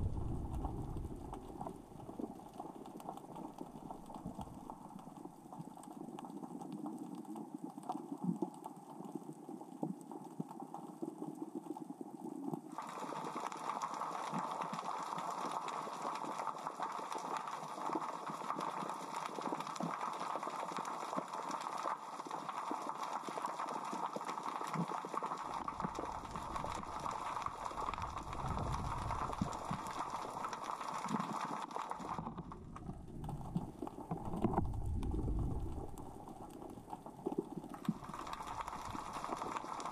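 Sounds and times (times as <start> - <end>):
low rumbling: 0.0 - 2.2, 26.1 - 29.8, 32.4 - 36.9
underwater rocks clicking: 0.0 - 11.8, 22.5 - 39.9.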